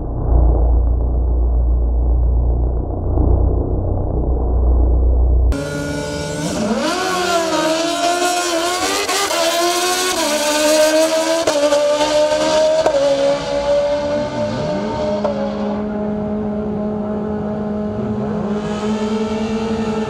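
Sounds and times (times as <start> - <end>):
dull low rumble: 0.0 - 6.1
motorcycle engines at full throttle: 5.1 - 20.0.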